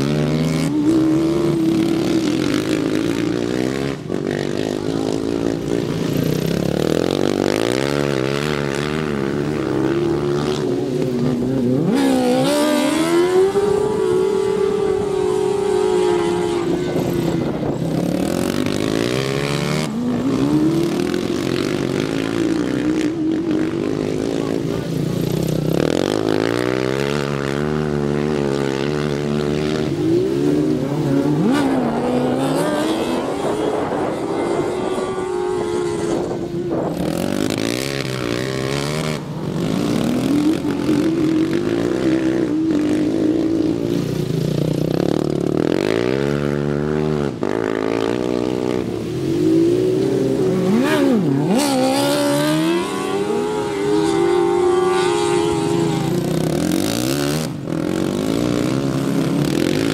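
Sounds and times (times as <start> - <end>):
lawn mower engines revving: 0.0 - 59.9.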